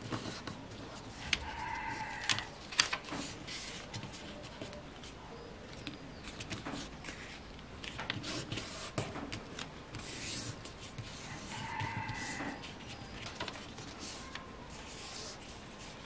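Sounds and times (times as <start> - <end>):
paper rustling and crinkling: 0.0 - 16.0
animal call: 1.4 - 2.5.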